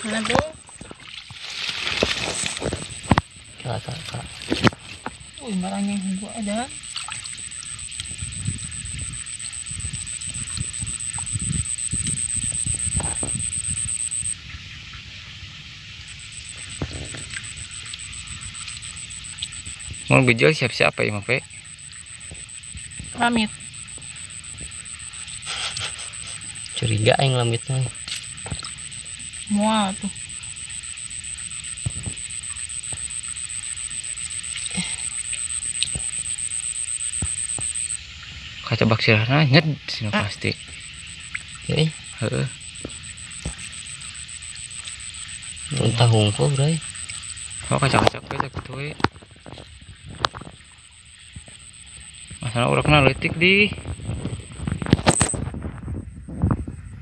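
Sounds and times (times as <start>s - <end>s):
steady high hiss: 0.0s - 55.7s
steady high-pitched whine: 0.0s - 57.0s.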